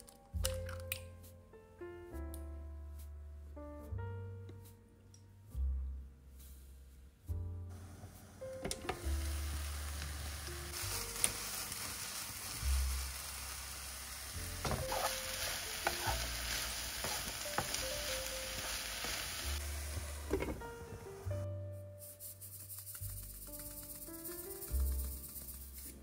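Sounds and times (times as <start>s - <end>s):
vegetables sizzling in a frying pan: 8.9s - 20.9s
utensil stirring clicks: 22.6s - 26.0s.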